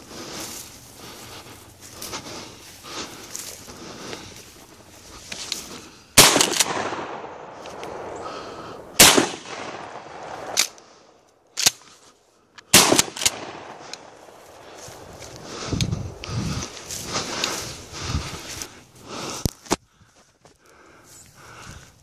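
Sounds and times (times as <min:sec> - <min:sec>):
shotgun shots: 0:06.2 - 0:10.9, 0:12.7 - 0:15.1
shotgun pump clacks: 0:11.6 - 0:11.9, 0:12.6 - 0:14.1.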